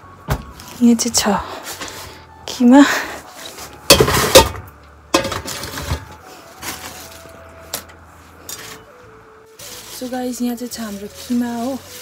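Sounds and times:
plastic bags crinkling: 5.6 - 7.4, 9.6 - 12.0.

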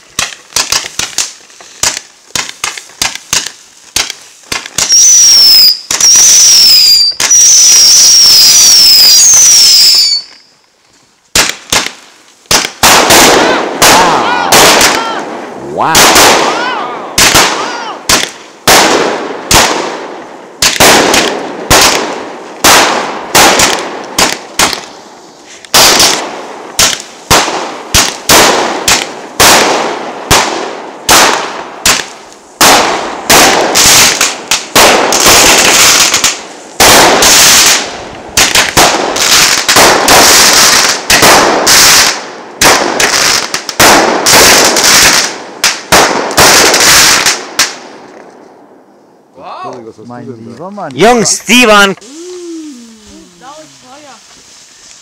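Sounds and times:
fireworks banging: 0.0 - 10.5, 11.2 - 48.7
fireworks hissing: 0.0 - 18.4, 23.6 - 29.2, 51.1 - 55.0.

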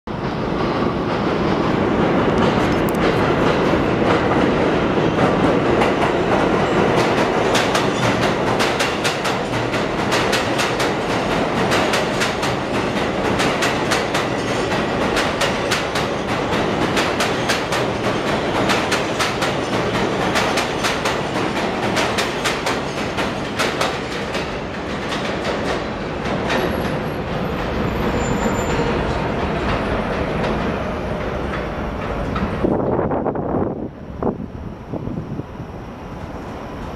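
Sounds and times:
train wheels rumbling and clacking: 0.1 - 35.4
high wheel squeals: 27.7 - 29.3.

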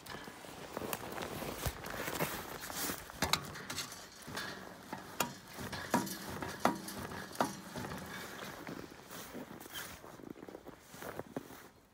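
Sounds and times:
metallic knocks and clinks: 3.2 - 8.8.

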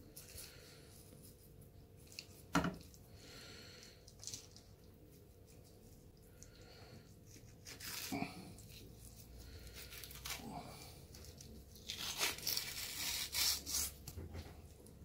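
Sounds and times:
fish skin tearing: 7.2 - 14.1.

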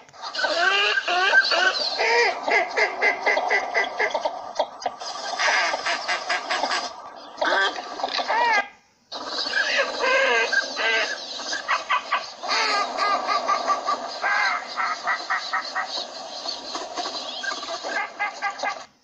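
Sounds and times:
ducks calling nasally: 0.0 - 19.0.

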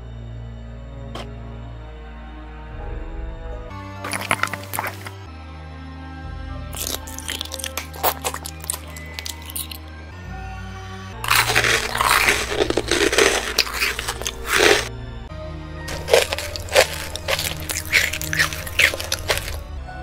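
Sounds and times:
background music: 0.0 - 20.0
crunching bites: 4.0 - 5.2, 6.8 - 9.9, 11.2 - 14.9, 15.9 - 19.7.

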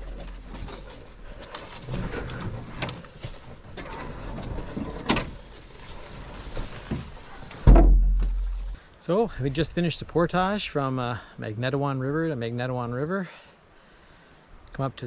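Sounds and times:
canoe clicking and creaking: 0.0 - 8.8
footsteps on forest trail: 5.4 - 8.8.

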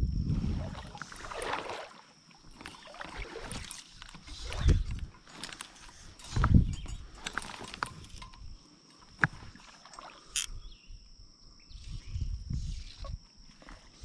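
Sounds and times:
water sloshing and splashing: 0.3 - 10.5.

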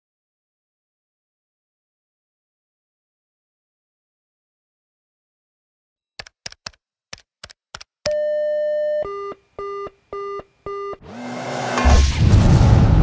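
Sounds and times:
quick clicks: 6.2 - 7.9
electronic beeps: 8.1 - 11.0
rushing noise: 11.1 - 13.0.

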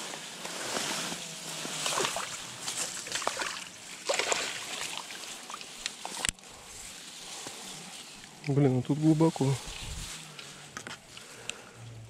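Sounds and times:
reed stems rustling on microphone: 0.0 - 12.0
water splashing: 1.8 - 6.2.

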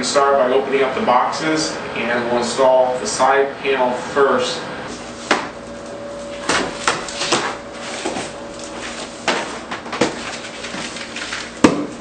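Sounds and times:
cardboard being handled: 6.2 - 12.0.

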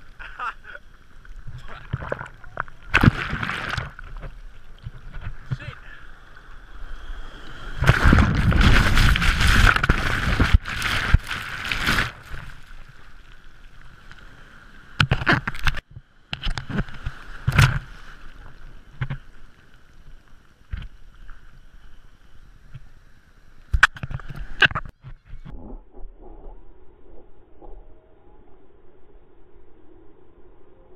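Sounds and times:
water splashing against camera: 0.0 - 6.0, 7.8 - 13.4.

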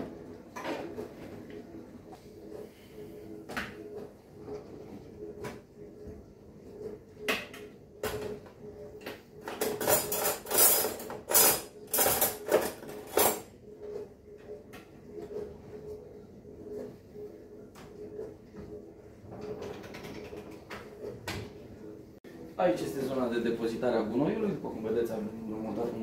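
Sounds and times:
cutlery clattering in a tray: 9.6 - 13.4.

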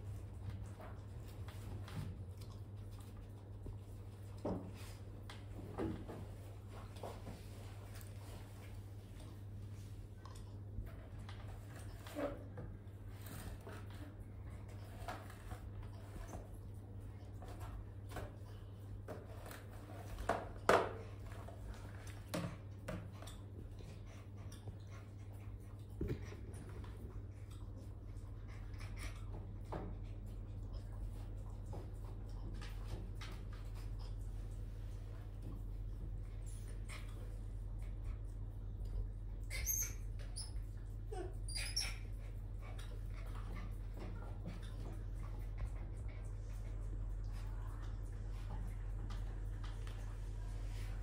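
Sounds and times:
steady low hum: 0.0 - 51.0
pet whimpering squeaks: 39.4 - 42.8.

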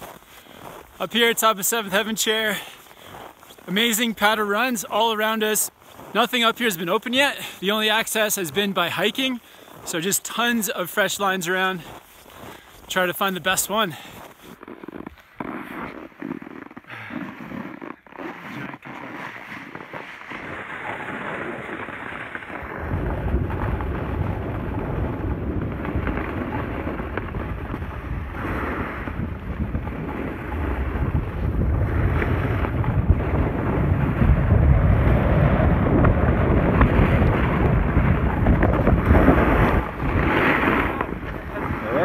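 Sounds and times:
snowboard sliding over snow: 0.0 - 42.0
wind buffeting microphone: 21.0 - 42.0.

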